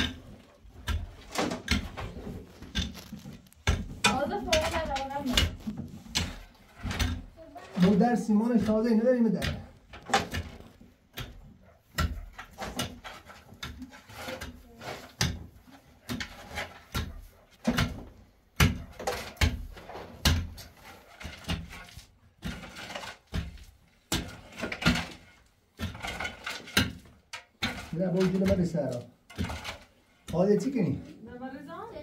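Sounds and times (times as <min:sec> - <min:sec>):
tools scraping and knocking cement: 0:00.0 - 0:32.0.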